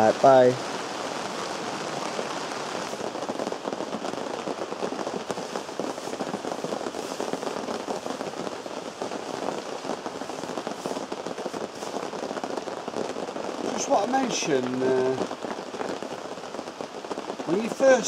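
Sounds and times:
rain drumming on tent: 0:00.0 - 0:18.0.

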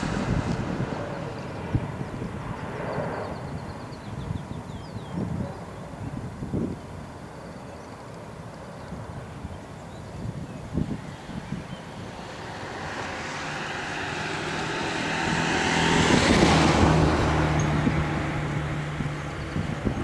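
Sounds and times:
passing vehicle engine: 0:00.0 - 0:03.4, 0:11.2 - 0:20.0.

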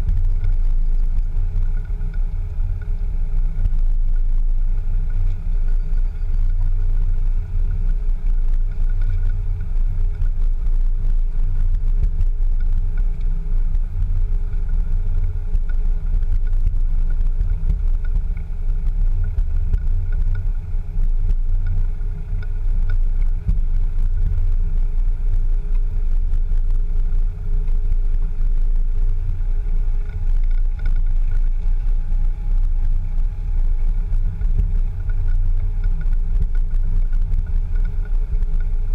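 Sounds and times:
engine and tyres rumbling: 0:00.0 - 0:38.9.

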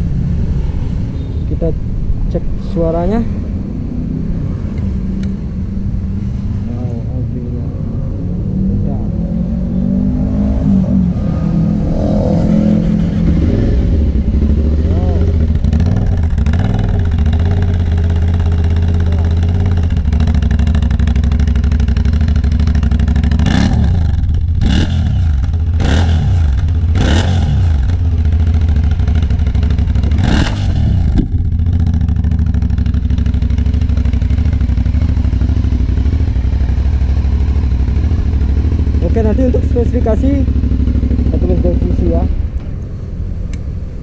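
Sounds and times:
motorcycle throttle blips: 0:10.8 - 0:42.8
motorcycle engine idling: 0:13.9 - 0:42.8.

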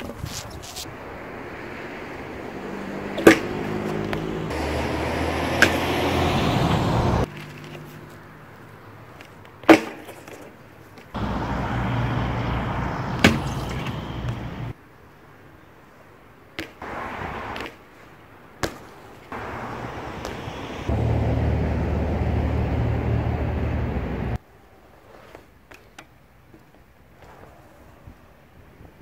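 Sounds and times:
bike tyres rolling on concrete: 0:00.0 - 0:14.8, 0:15.4 - 0:29.0.

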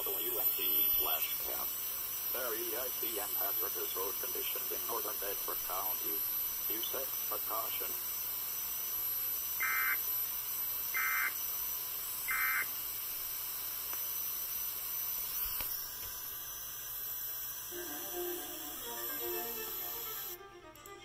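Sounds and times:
steady hiss: 0:00.0 - 0:08.1
alert data tone bursts: 0:00.0 - 0:20.4.

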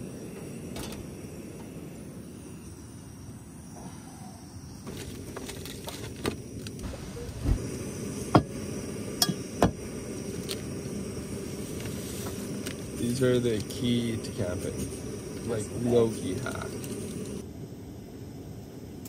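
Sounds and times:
steady low rush: 0:06.4 - 0:19.0.

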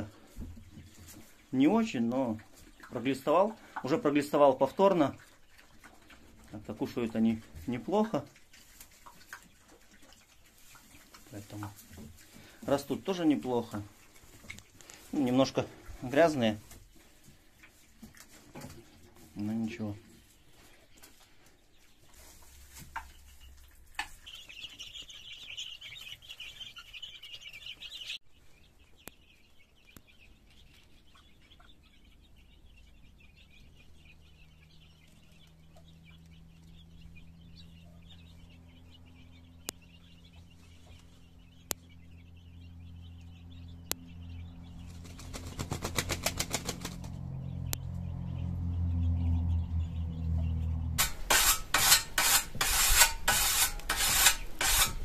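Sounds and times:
duck flapping feathers: 0:44.9 - 0:47.2.

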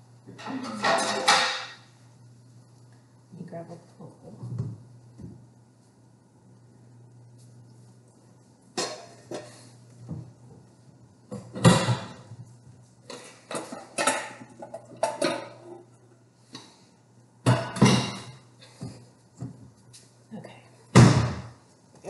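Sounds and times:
glass dishes clinking: 0:00.4 - 0:01.8.

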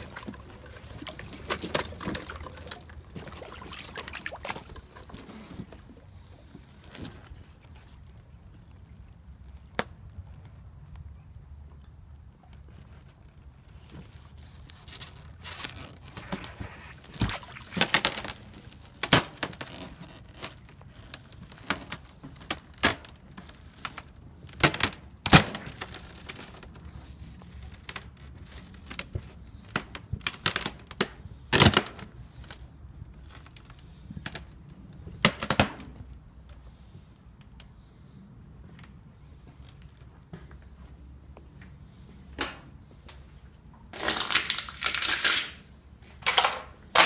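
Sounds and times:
ice cracking and snapping: 0:44.0 - 0:45.6.

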